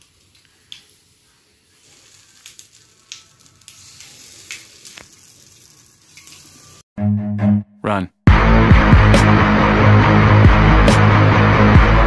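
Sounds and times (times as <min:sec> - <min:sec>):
oil sizzling in a hot pan: 0:00.0 - 0:06.8.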